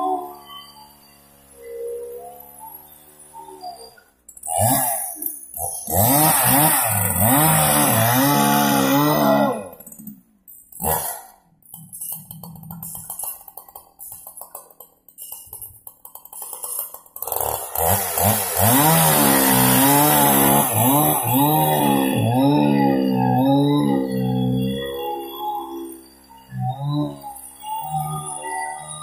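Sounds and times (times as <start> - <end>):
chainsaw cutting log: 4.4 - 10.1, 10.7 - 13.3, 16.2 - 28.9.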